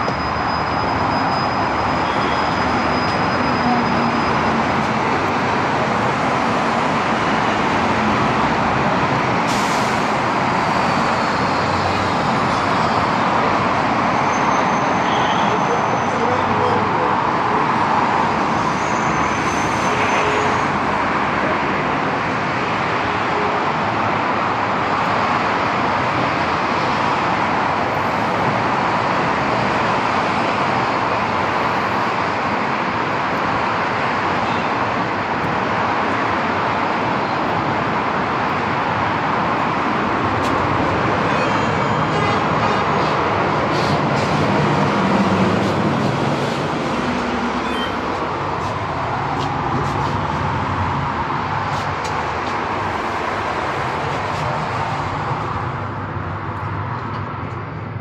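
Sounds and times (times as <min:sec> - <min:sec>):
heavy vehicle engine: 0:00.0 - 0:58.0
road traffic passing: 0:00.0 - 0:58.0.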